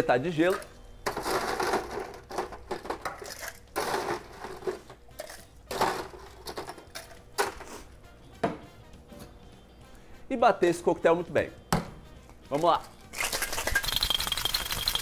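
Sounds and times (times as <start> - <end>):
ice cubes clattering into metal tin: 1.0 - 7.1, 13.2 - 15.0.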